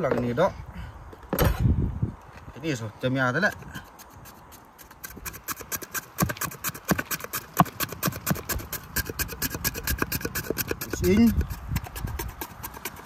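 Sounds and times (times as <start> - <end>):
knife chopping on wooden board: 4.8 - 13.0.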